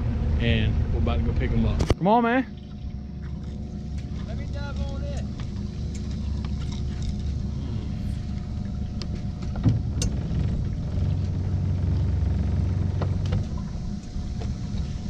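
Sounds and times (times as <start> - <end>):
outboard motor humming: 0.0 - 15.0.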